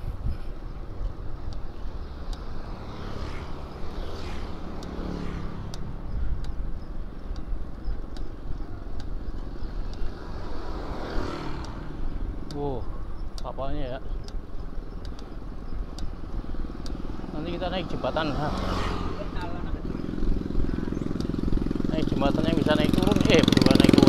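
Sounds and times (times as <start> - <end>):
bike tyres on asphalt: 0.0 - 24.0
motor vehicle passing: 0.0 - 24.0
wind rumbling on microphone: 0.0 - 24.0
faint clicks: 15.0 - 15.3.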